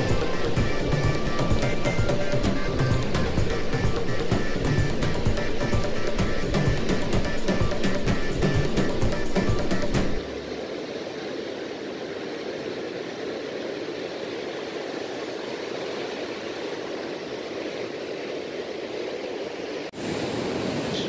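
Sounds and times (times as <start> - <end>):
surf washing over rocks: 0.0 - 21.0.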